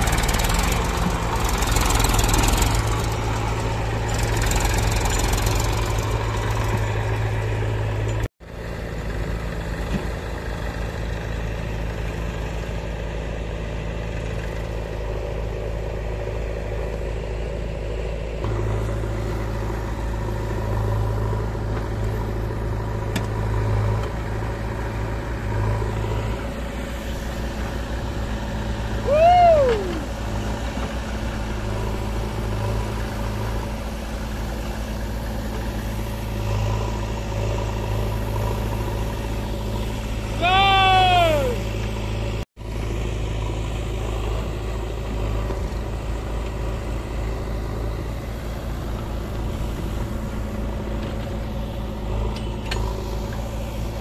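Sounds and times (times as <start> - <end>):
tractor diesel engine running: 0.0 - 54.0
short high rising and falling call: 29.0 - 30.2, 40.4 - 41.7.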